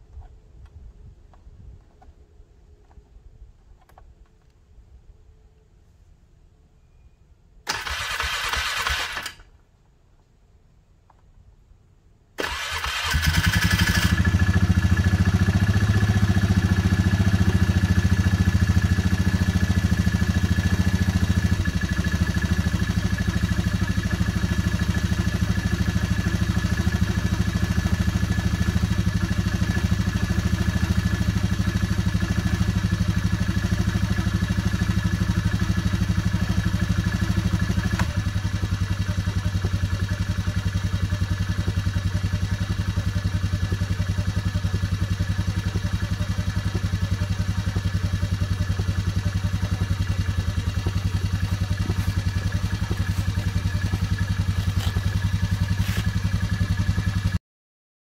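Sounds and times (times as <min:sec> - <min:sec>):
atv engine idling: 0:12.4 - 0:57.4.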